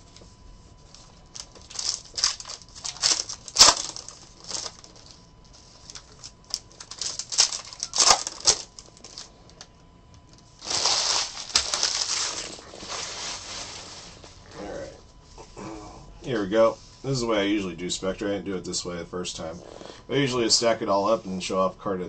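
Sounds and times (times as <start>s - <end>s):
foil wrapper crinkling: 0.9s - 9.3s, 10.4s - 14.3s
cards rustling: 1.0s - 9.3s, 10.6s - 14.2s.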